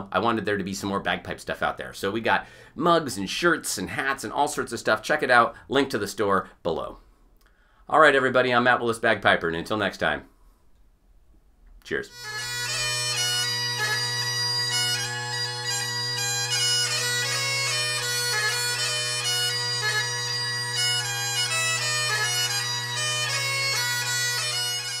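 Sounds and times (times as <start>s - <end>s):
bagpipe playing a tune: 12.1s - 25.0s.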